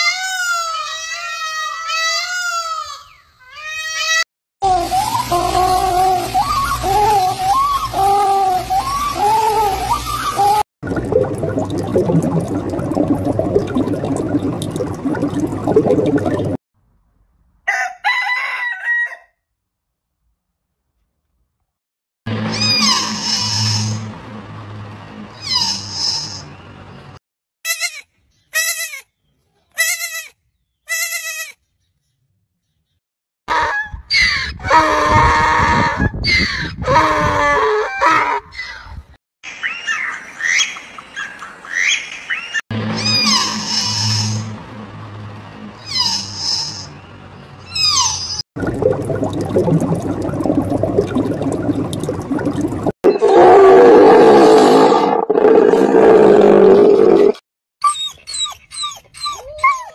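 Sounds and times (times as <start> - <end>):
water bubbling: 8.7 - 16.6, 48.6 - 57.3
rooster crowing: 17.6 - 19.4
young goat bleating: 28.6 - 29.0, 29.8 - 30.3, 30.9 - 31.6.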